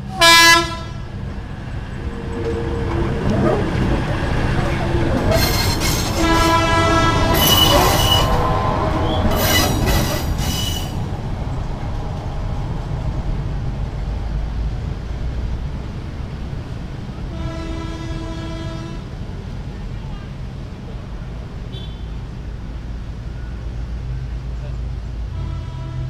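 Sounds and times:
train horn: 0.0 - 1.1, 5.3 - 11.0, 17.3 - 19.1, 25.3 - 26.0
railbus rumbling past: 0.0 - 26.0
wheel flange squeal: 2.2 - 6.7, 7.3 - 11.0.

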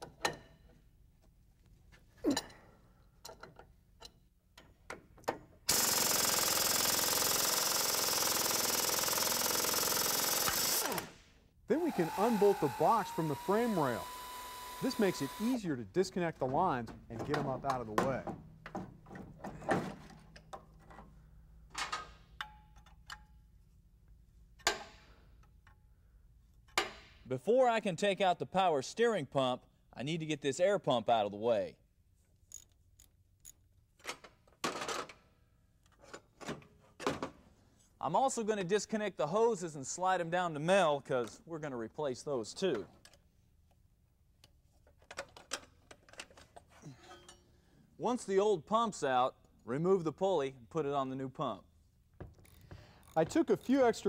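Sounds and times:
air impact wrench hammering: 5.7 - 11.2, 11.8 - 15.6.

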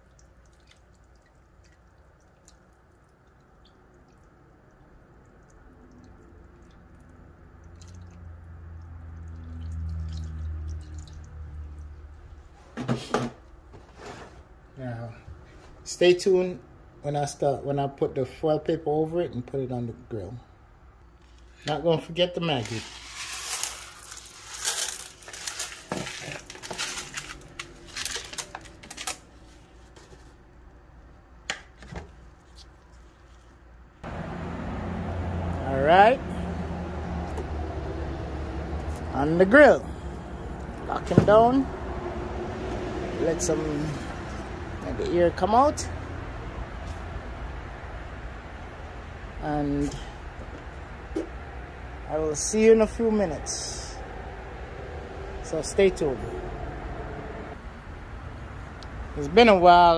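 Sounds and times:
seasoning packet rustling: 22.5 - 29.6
liquid pouring into foil pan: 22.6 - 29.2.

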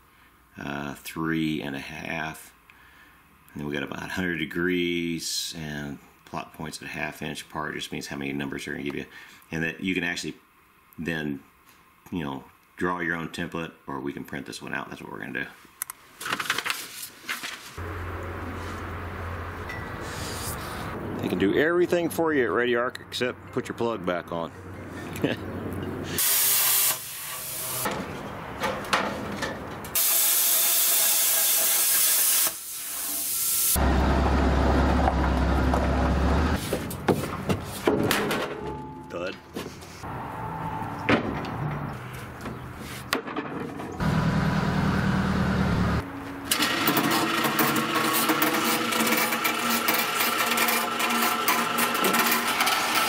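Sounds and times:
quiet uneven hiss: 0.0 - 17.8
plasma cutter arc hissing: 26.2 - 27.9, 30.0 - 33.8
metal knocks: 40.9 - 44.0
electric chain hoist humming: 44.0 - 53.0.

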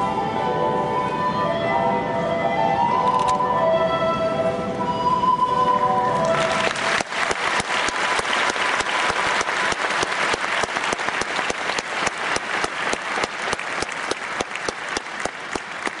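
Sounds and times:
background music with held note: 0.0 - 6.7
audience applause: 6.2 - 16.0.

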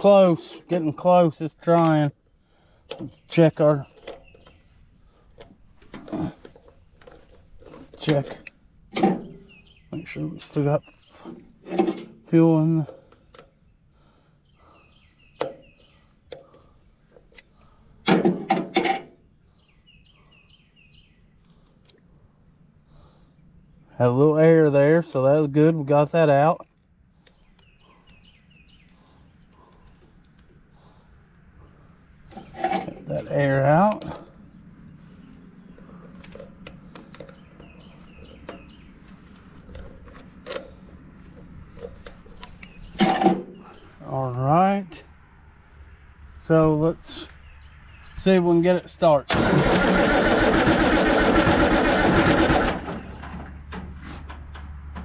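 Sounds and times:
low hum: 0.0 - 48.3
high insect drone: 0.0 - 55.0
metal clanks and knocks: 8.9 - 9.4, 11.6 - 12.2, 18.1 - 19.2, 32.3 - 33.1, 43.0 - 43.6.

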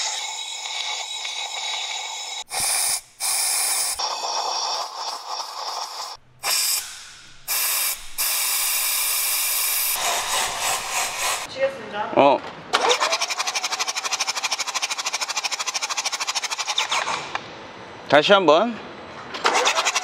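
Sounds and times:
compressed-air blow gun hissing: 0.0 - 11.5.

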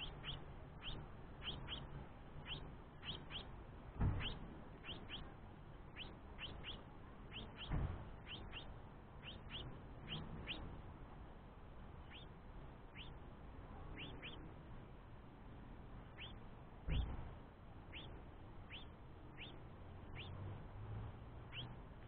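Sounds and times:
young finch begging chirps: 0.0 - 10.9, 11.9 - 14.6, 16.0 - 20.8, 21.4 - 22.0
low thump: 3.9 - 4.4, 7.6 - 8.2, 16.8 - 17.4.

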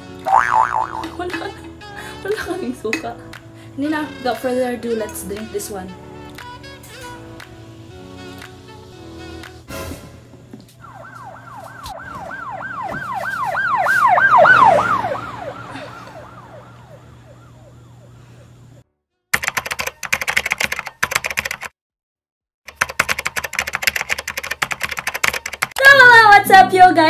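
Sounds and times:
siren wailing: 10.8 - 18.5
keyboard typing: 19.4 - 21.7, 22.7 - 25.8.

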